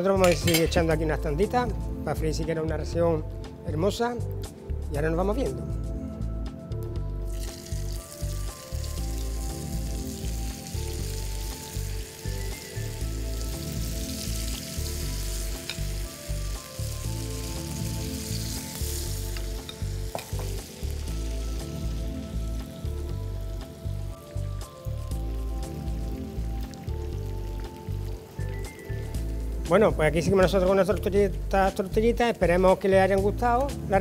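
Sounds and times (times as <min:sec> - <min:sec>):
background music: 0:00.0 - 0:34.0
oil sizzling in frying pan: 0:07.3 - 0:29.7.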